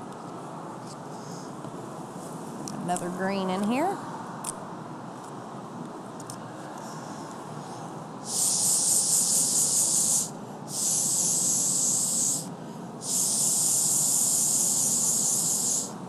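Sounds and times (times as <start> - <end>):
air hissing through blow pen: 8.2 - 16.0.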